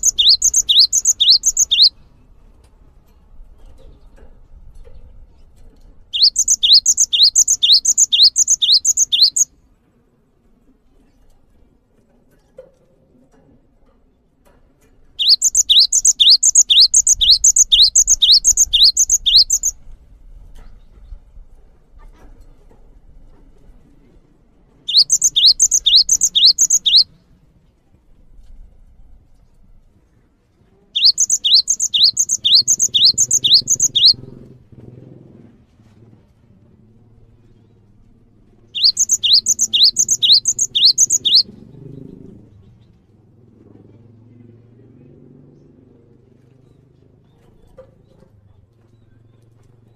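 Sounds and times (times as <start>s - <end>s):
bird singing whistled phrases: 0.0s - 2.0s, 6.2s - 9.5s, 15.2s - 19.8s, 24.9s - 27.1s, 31.0s - 34.3s, 38.8s - 41.5s.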